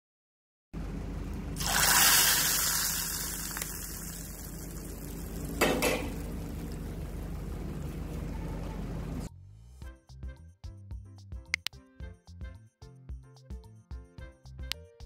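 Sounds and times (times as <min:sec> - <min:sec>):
hot ghee sizzling: 0:01.6 - 0:07.9.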